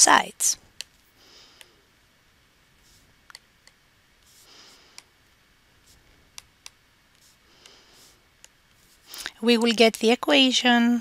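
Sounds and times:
soft brush of noise: 0:02.8 - 0:03.2, 0:04.2 - 0:04.9, 0:07.2 - 0:09.3.

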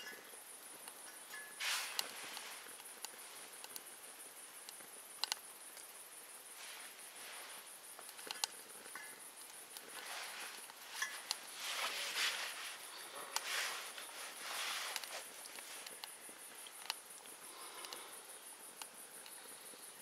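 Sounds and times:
twigs crackling in a stove: 0:00.0 - 0:19.5
crickets chirring: 0:00.0 - 0:20.0
soft rustles: 0:01.3 - 0:03.8, 0:06.4 - 0:16.8.

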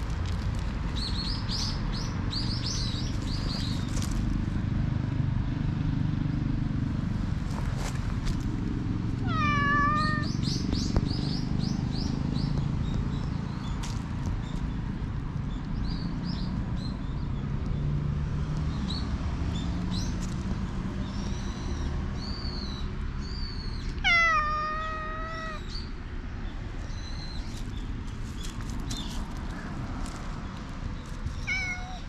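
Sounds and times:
cat meowing: 0:09.2 - 0:10.4, 0:24.0 - 0:25.7, 0:31.4 - 0:32.0.

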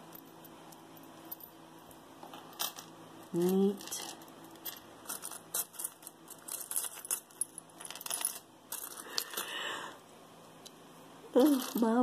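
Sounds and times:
metal earrings clinking: 0:02.2 - 0:09.6, 0:11.3 - 0:12.0.

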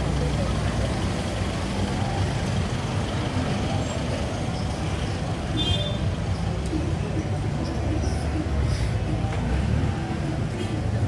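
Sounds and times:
traffic engine rumble: 0:00.0 - 0:11.0.

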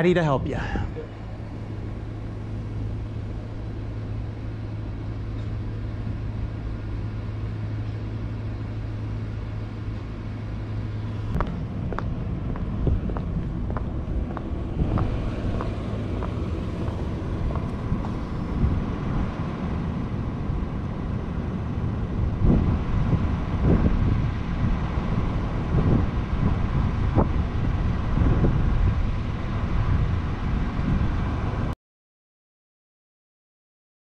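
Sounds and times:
wind buffeting microphone: 0:11.2 - 0:31.7
shoe cleats clicking on pavement: 0:11.4 - 0:18.2.

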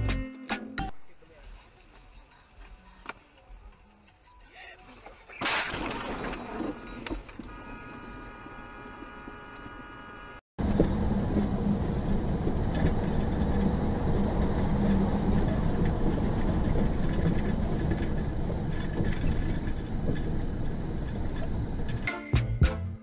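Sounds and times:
vehicle engine rumble: 0:06.7 - 0:22.1.

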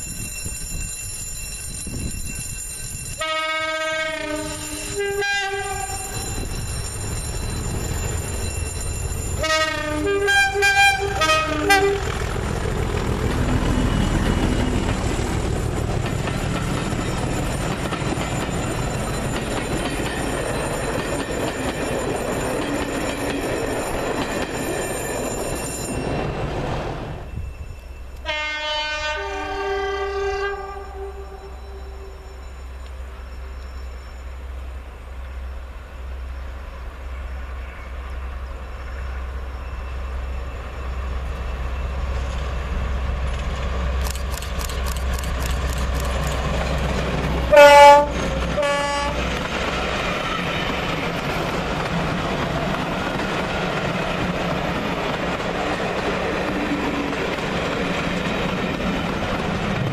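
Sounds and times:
two-tone locomotive horn: 0:03.2 - 0:06.4, 0:09.4 - 0:12.3, 0:28.2 - 0:32.4, 0:47.4 - 0:49.4
train wheels rumbling and clattering: 0:04.0 - 0:28.3, 0:35.0 - 0:59.9.

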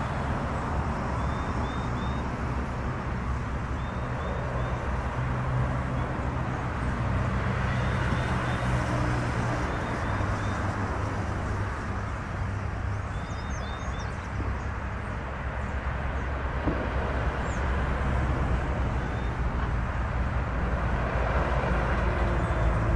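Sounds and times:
low engine hum: 0:00.0 - 0:22.9
passing motor traffic rumble: 0:00.0 - 0:22.9.

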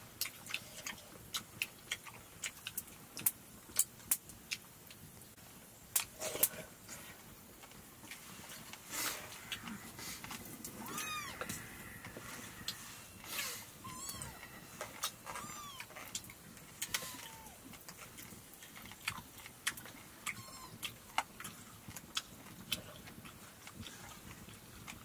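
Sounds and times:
cat meowing: 0:10.7 - 0:12.8, 0:13.8 - 0:16.1, 0:16.8 - 0:17.7, 0:20.3 - 0:21.0.

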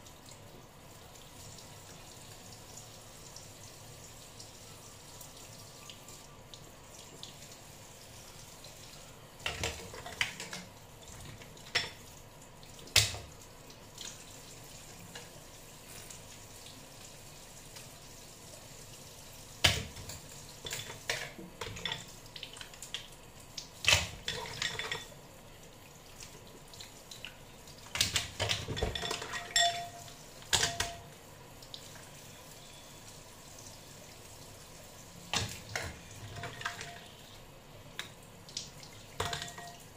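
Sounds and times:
tap water running into sink: 0:01.2 - 0:32.1, 0:37.9 - 0:39.9.

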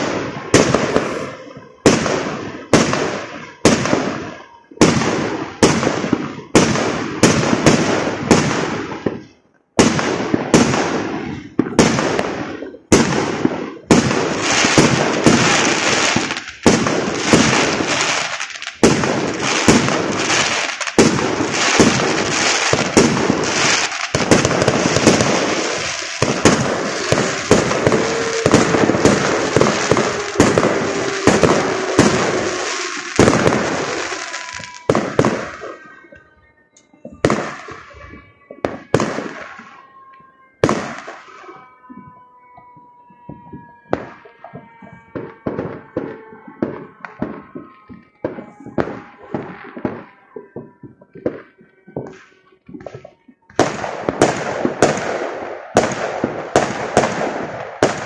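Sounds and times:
firework shells bursting: 0:10.6 - 0:36.2.

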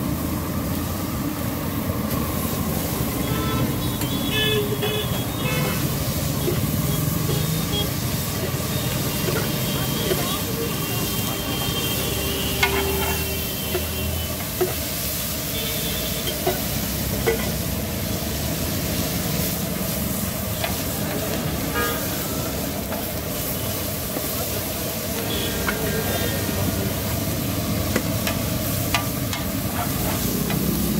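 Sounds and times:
food sizzling on a griddle: 0:00.0 - 0:30.9
metal spatula clacking on griddle: 0:12.5 - 0:14.8, 0:16.3 - 0:17.6, 0:27.9 - 0:29.6.

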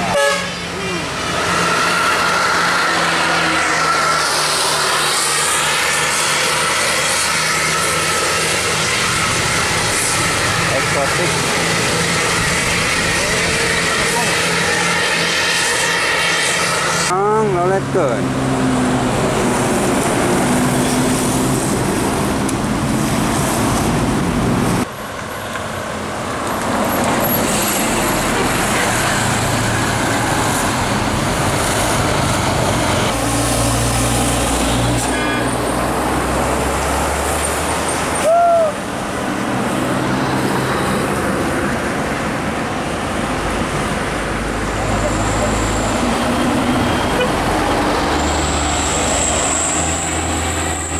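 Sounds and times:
vehicle horn toots: 0:00.1 - 0:00.7, 0:35.0 - 0:35.6.

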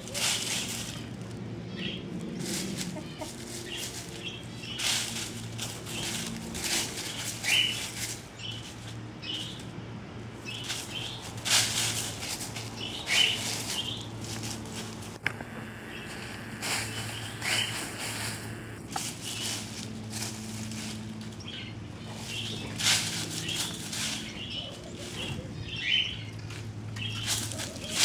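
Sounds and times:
hens scratching through dry leaves: 0:00.0 - 0:28.0
soft hen clucks: 0:02.4 - 0:04.0.

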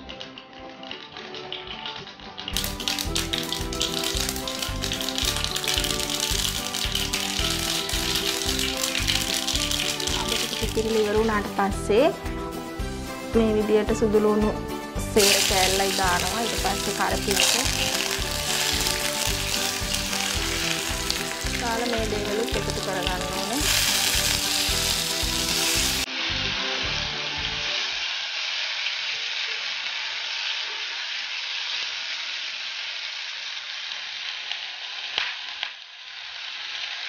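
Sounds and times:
oil sizzling in a frying pan: 0:00.0 - 0:37.0
spatula stirring: 0:01.3 - 0:11.2, 0:15.2 - 0:26.1
background music with a beat: 0:02.5 - 0:27.7.

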